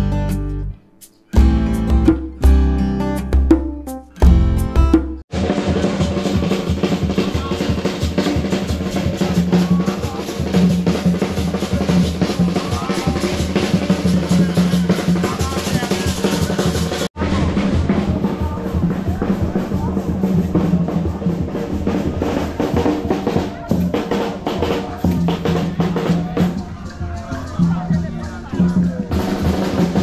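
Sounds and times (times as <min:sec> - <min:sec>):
guitar passage: 0:00.0 - 0:05.2
fast drum-heavy music: 0:01.3 - 0:26.8, 0:27.6 - 0:30.0.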